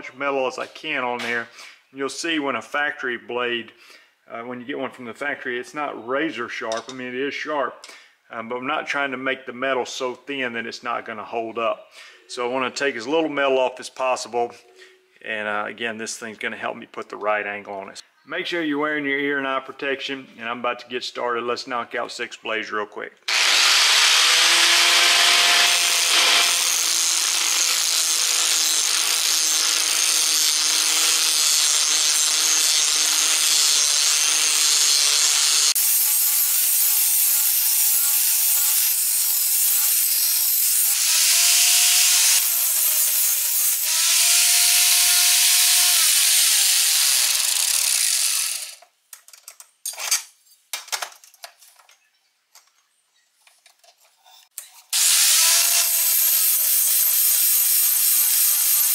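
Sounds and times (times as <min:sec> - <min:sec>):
angle grinder grinding steel: 0:23.3 - 0:48.8, 0:54.6 - 0:58.9.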